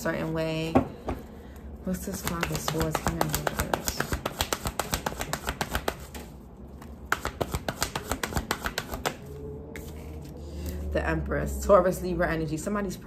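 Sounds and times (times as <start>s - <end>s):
cards being shuffled: 2.0s - 10.3s.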